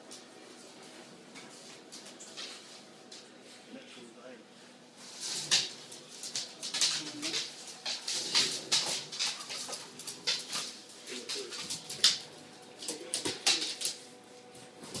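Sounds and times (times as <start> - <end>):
paws scrabbling on wooden floor: 0.0 - 3.6, 5.0 - 15.0.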